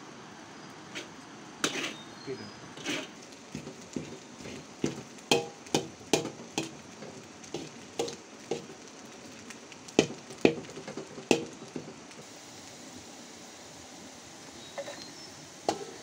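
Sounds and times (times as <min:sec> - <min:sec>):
faint frying sizzle: 0:00.0 - 0:16.0
metal spatula scraping wok: 0:00.9 - 0:08.7.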